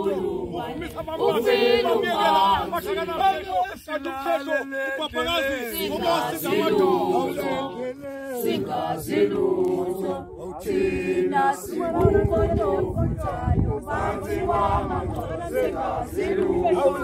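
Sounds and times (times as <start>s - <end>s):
group singing unaccompanied: 0.0s - 17.0s
low rumbling on microphone: 10.8s - 17.0s.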